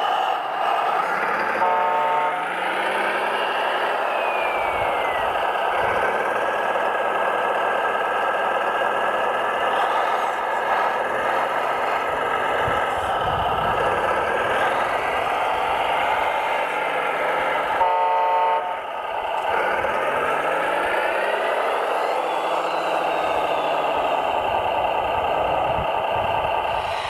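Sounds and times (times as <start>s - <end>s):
diesel engine sound: 0.0s - 27.0s
high whine falling in pitch: 3.3s - 5.6s, 21.7s - 25.3s.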